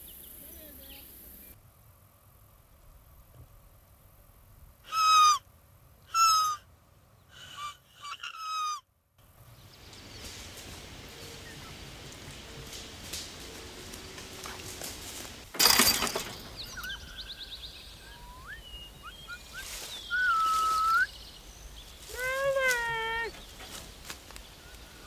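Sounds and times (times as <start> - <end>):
birds whistling and trilling: 15.6 - 25.0
long rising whistled note: 18.0 - 21.1.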